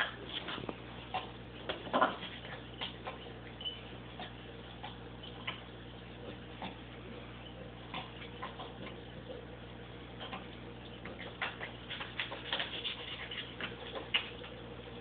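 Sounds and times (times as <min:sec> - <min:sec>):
steady low hum: 0:00.0 - 0:15.0
small clicks and crackles: 0:10.2 - 0:14.6.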